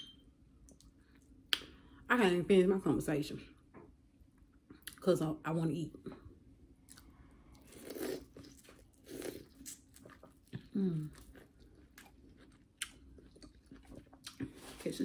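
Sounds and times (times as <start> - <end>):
chewing corn on the cob: 6.8 - 14.9.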